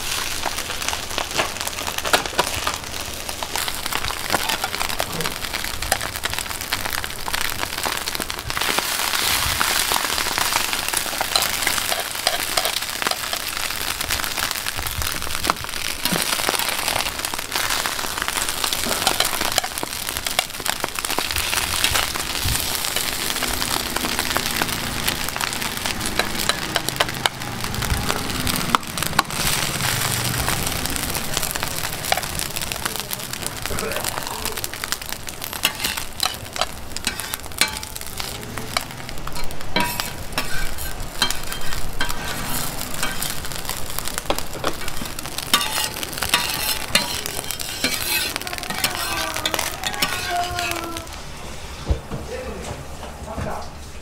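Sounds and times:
patties sizzling on griddle: 0:00.0 - 0:52.5
metal spatula scraping griddle: 0:09.2 - 0:13.6, 0:35.5 - 0:51.8.

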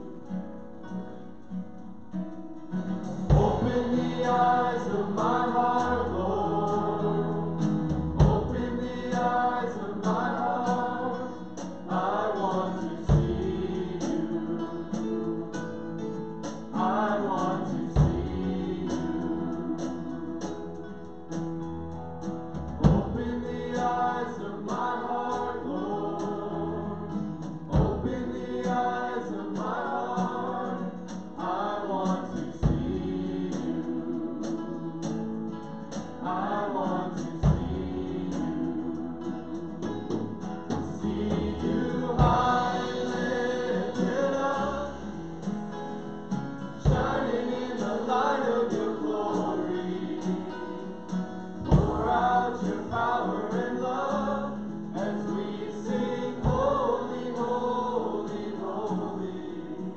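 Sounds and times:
group singing a hymn: 0:00.0 - 0:01.6, 0:02.6 - 0:59.9
instrumental backing: 0:00.0 - 0:59.5
deep drum hits: 0:03.2 - 0:04.4, 0:07.9 - 0:09.3, 0:40.8 - 0:43.4.

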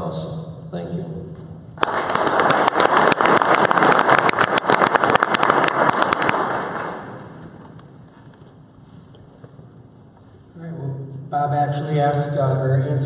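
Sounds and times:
audience applauding: 0:01.8 - 0:07.7.

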